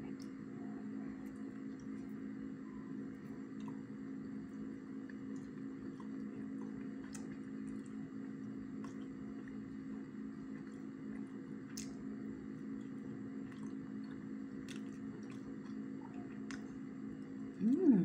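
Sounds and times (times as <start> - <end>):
steady low hum: 0.0 - 18.0
person chewing: 3.4 - 12.0, 12.6 - 18.0.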